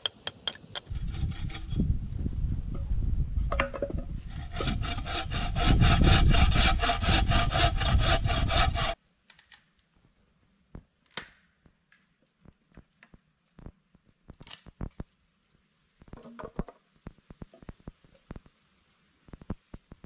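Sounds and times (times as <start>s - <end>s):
bow saw cutting log: 0.0s - 1.9s, 4.2s - 9.0s.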